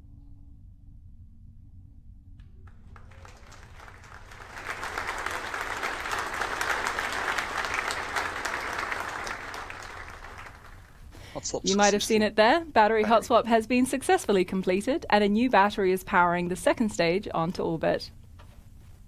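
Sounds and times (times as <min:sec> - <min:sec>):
room of people applauding: 0:02.6 - 0:11.8.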